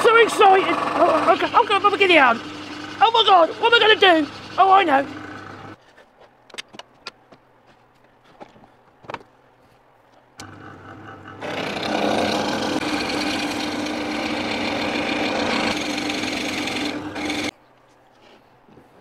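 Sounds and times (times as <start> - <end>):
drill bit boring into wood: 0.0 - 5.8, 10.4 - 17.5
drill press motor running: 0.0 - 5.8, 10.4 - 17.5.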